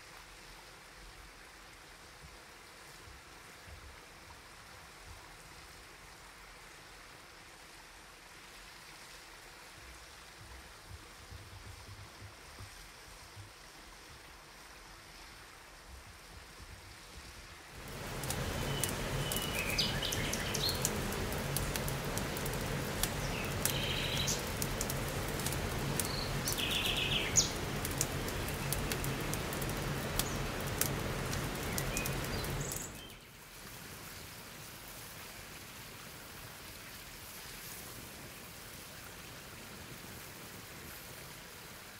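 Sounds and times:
faint hiss: 0.0s - 41.9s
steady rushing noise: 17.2s - 33.0s
sharp crackles: 17.8s - 33.1s
bird chirps: 18.6s - 20.9s, 23.2s - 24.5s, 26.0s - 27.6s.

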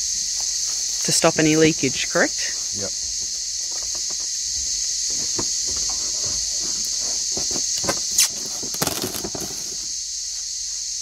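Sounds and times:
insects droning: 0.0s - 11.0s
paper rustling and tapping: 5.1s - 9.9s.

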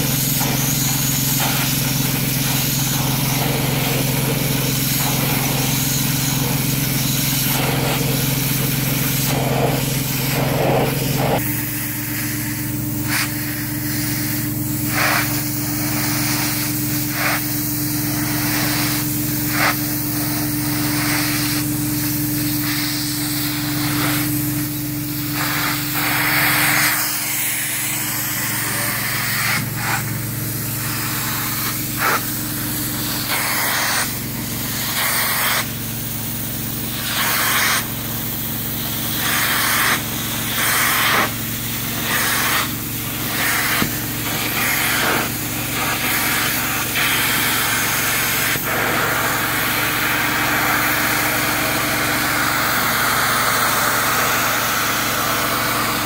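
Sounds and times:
extraction unit sucking air and water: 0.0s - 56.0s.

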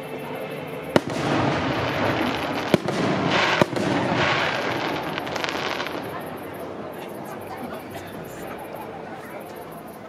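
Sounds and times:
crackle of bursting fireworks: 0.0s - 8.8s
firework bangs: 0.9s - 6.7s.

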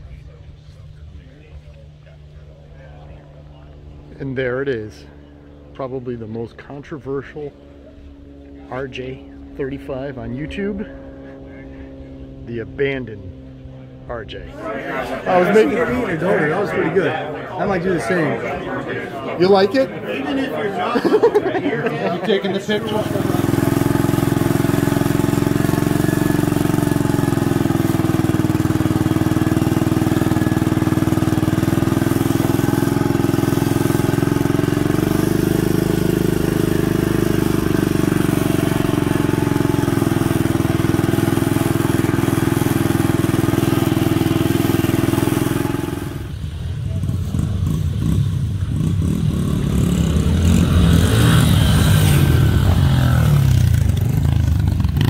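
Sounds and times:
dirt bike engines: 0.0s - 55.0s
garden tractor engine running: 20.9s - 48.0s.

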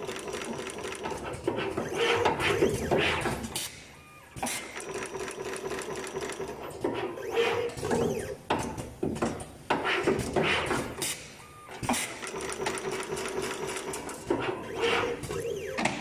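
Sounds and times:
sharp machine clacks: 0.0s - 8.4s, 10.5s - 16.0s
machine motor whir: 0.8s - 8.4s, 11.7s - 16.0s.

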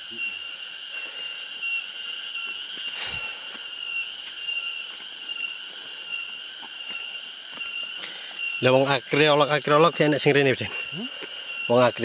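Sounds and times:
insects droning: 0.0s - 12.0s
footsteps on a stony path: 2.4s - 8.5s.

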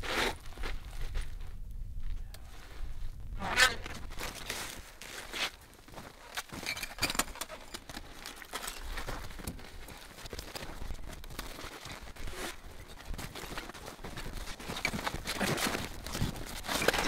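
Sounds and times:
footsteps crunching on snow: 0.0s - 6.6s, 7.8s - 17.0s
rustle of winter clothing: 2.4s - 6.4s, 8.8s - 17.0s.

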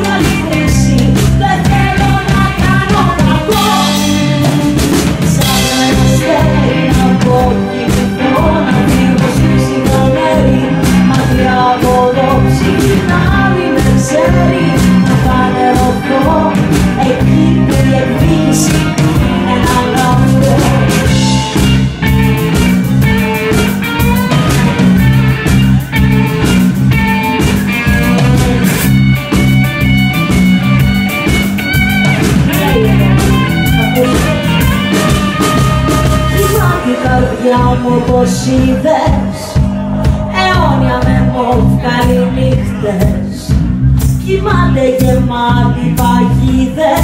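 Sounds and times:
woman singing: 0.0s - 21.7s, 27.7s - 29.0s, 32.5s - 47.0s
live rock band playing: 0.0s - 47.0s.

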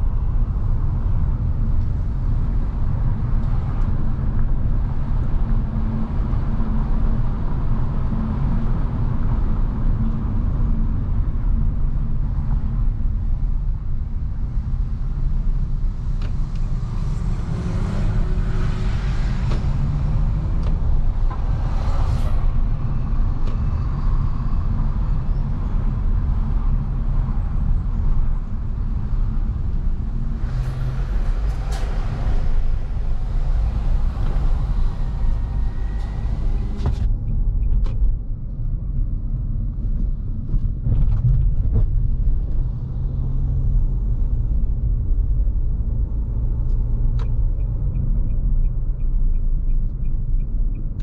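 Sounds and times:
car engine rumble: 0.0s - 51.0s
road hiss: 30.4s - 37.0s.

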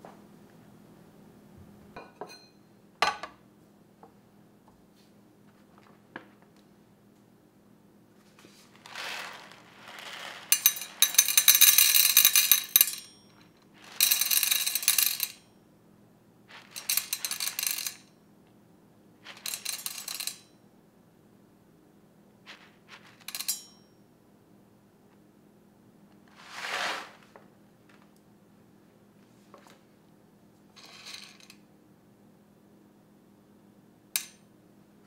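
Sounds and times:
coffee beans poured into metal pitcher: 8.6s - 13.0s, 13.7s - 15.3s, 16.5s - 18.0s, 26.3s - 27.2s.

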